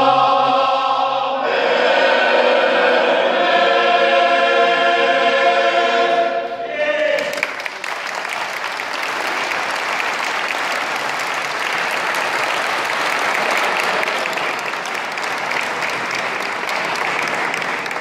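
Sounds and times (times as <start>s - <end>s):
audience applauding: 7.2s - 18.0s.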